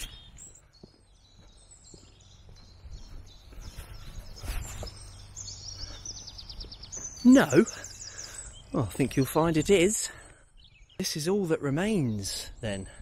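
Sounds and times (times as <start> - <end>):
scuffing footsteps: 0.0 - 7.6
small birds chirping: 0.0 - 13.0.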